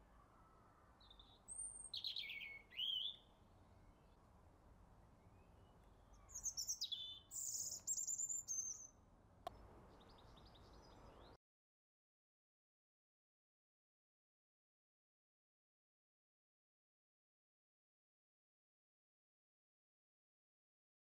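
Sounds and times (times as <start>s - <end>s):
small birds chirping and whistling: 1.1s - 3.2s, 6.2s - 8.9s.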